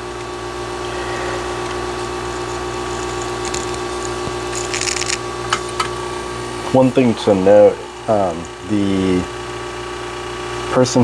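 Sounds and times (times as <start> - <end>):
small electric motor humming: 0.0 - 10.7
paper and wire crinkling: 2.7 - 5.8.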